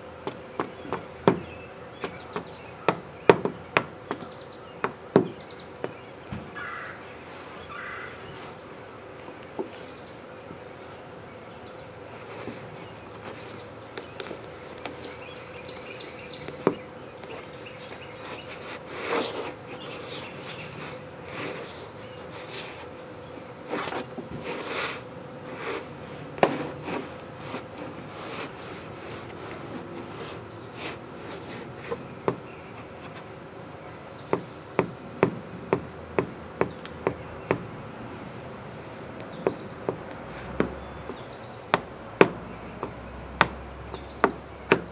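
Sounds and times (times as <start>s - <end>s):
faint buzzing hum: 0.0s - 44.9s
sneaker footsteps on wooden deck: 39.3s - 44.9s.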